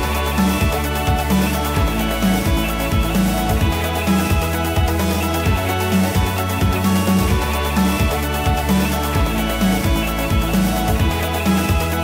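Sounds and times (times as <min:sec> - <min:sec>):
electronic music with kick drum: 0:00.0 - 0:12.0.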